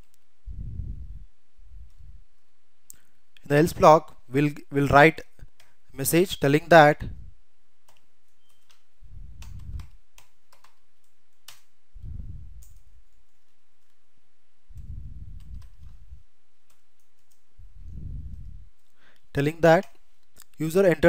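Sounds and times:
soft low rumbles: 0:00.0 - 0:02.8, 0:11.8 - 0:13.5, 0:14.6 - 0:16.4, 0:17.2 - 0:18.9.

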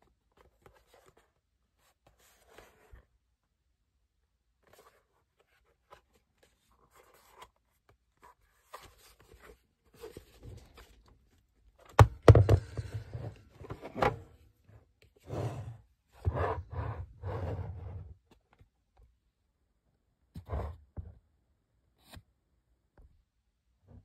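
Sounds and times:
plastic clacks and hollow thuds: 0:11.9 - 0:14.2.

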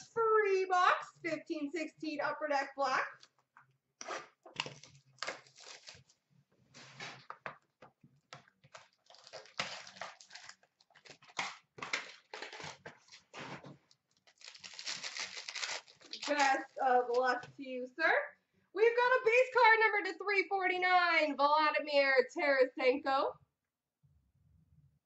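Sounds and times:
plastic wrap crinkling and tearing: 0:04.0 - 0:07.3, 0:08.5 - 0:17.4.

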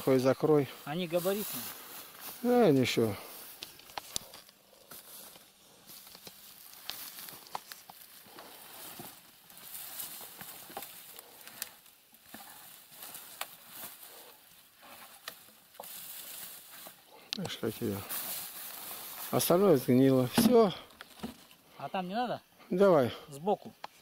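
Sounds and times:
dry grass and twigs crackling: 0:00.0 - 0:21.8
wood snapping and knocking: 0:20.3 - 0:21.4.

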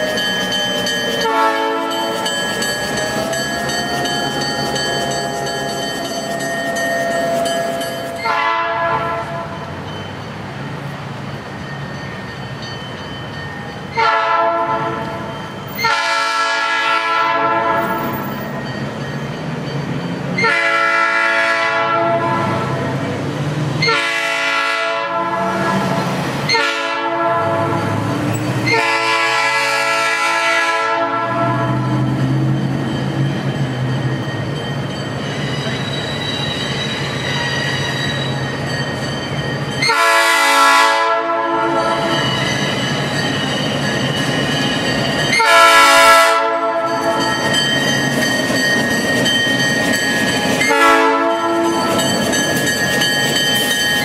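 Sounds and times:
locomotive air horn blasts: 0:01.2 - 0:02.3, 0:08.2 - 0:09.6, 0:14.0 - 0:18.3, 0:20.4 - 0:22.9, 0:23.8 - 0:28.0, 0:28.6 - 0:32.0, 0:39.8 - 0:42.3, 0:45.3 - 0:47.2, 0:50.7 - 0:52.0.

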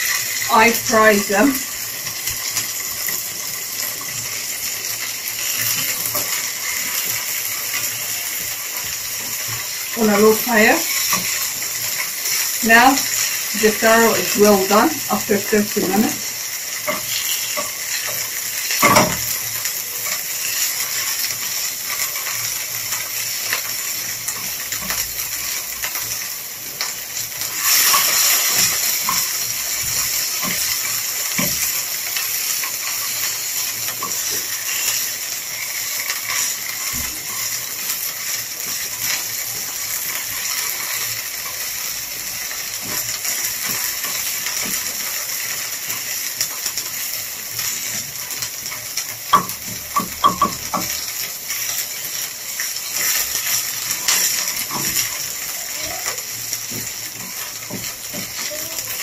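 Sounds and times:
food sizzling in frying pan: 0:00.0 - 0:59.0
wooden spatula scraping and tapping: 0:16.8 - 0:19.3, 0:49.3 - 0:51.0.

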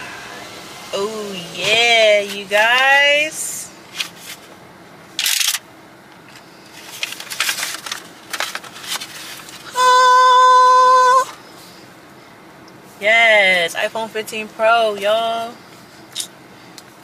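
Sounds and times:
paper rustling and crinkling: 0:06.8 - 0:09.7.

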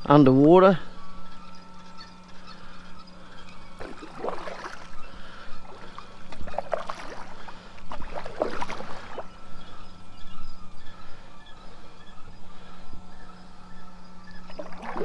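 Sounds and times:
paddle splashing in water: 0:03.8 - 0:04.9, 0:06.3 - 0:09.3, 0:14.6 - 0:15.0.

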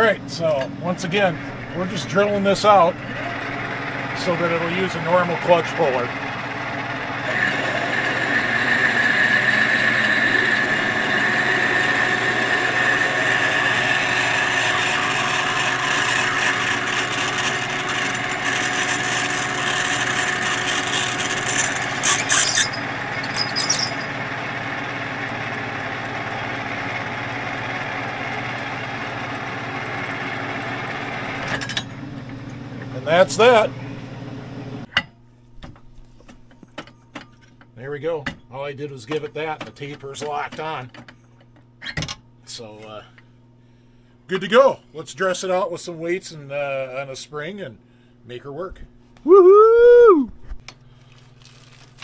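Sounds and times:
metal lathe motor hum: 0:00.0 - 0:34.9
drill cutting whine: 0:01.8 - 0:31.6
metal scraping bursts: 0:12.1 - 0:24.3.

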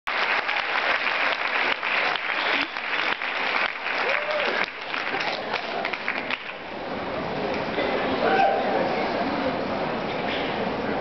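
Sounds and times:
audience applauding: 0:00.1 - 0:06.6.

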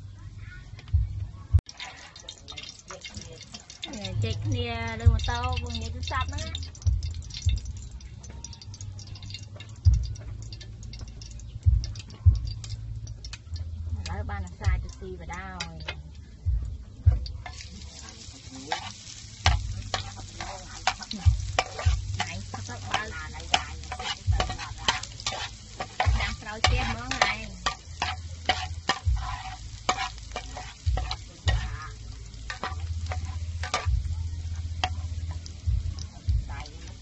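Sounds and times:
garlic sizzling in hot oil: 0:01.6 - 0:37.0
metal spatula scraping a pan: 0:01.7 - 0:04.4, 0:17.4 - 0:35.6.

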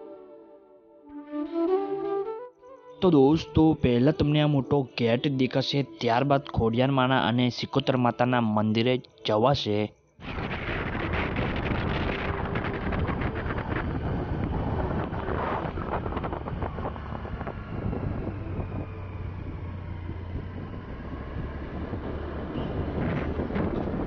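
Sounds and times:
vehicle engine and road noise: 0:10.2 - 0:24.0
wind buffeting microphone: 0:10.2 - 0:24.0.

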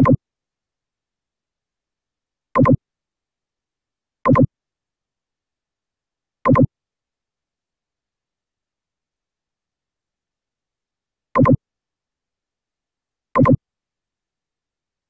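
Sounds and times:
mouse double click: 0:02.6 - 0:02.8, 0:04.3 - 0:04.5, 0:06.5 - 0:06.7, 0:11.4 - 0:11.6, 0:13.4 - 0:13.6.

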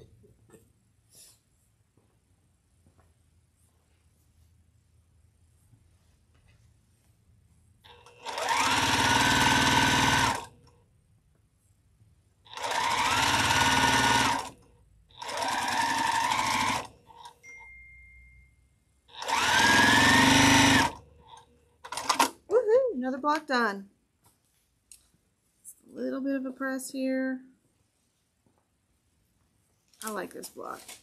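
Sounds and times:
sewing machine stitching: 0:07.9 - 0:10.5, 0:12.5 - 0:17.3, 0:19.1 - 0:22.4.

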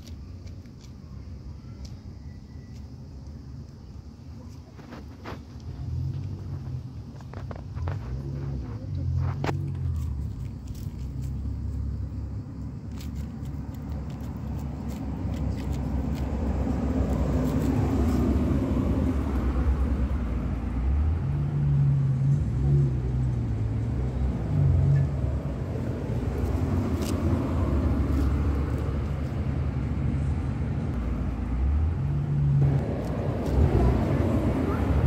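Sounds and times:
low engine-like rumble: 0:00.0 - 0:35.0
cat chewing and licking: 0:04.4 - 0:18.6.

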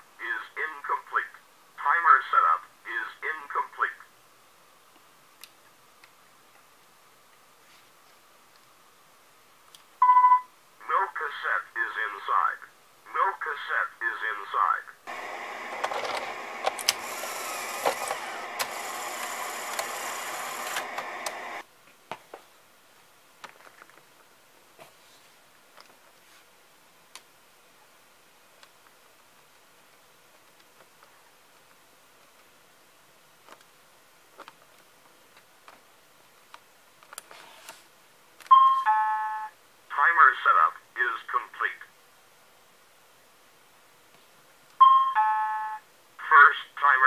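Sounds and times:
cassette loading mechanism running: 0:15.1 - 0:21.6.

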